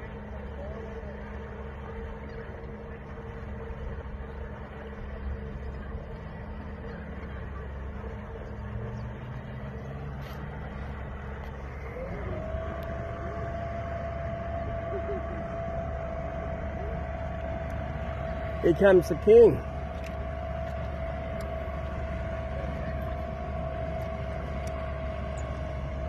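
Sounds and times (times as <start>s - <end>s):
engine droning: 0.0s - 26.0s
higher steady note gliding up: 8.8s - 26.0s.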